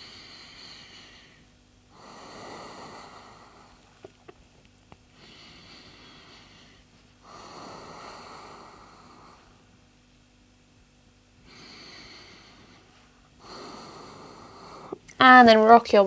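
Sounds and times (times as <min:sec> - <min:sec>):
person breathing deeply: 0:00.0 - 0:04.0, 0:05.1 - 0:09.6, 0:11.4 - 0:15.0.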